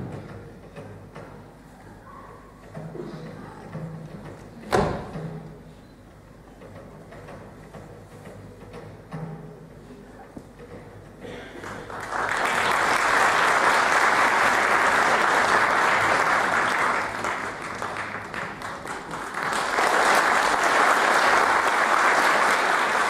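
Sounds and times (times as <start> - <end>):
audience clapping: 11.6 - 23.0.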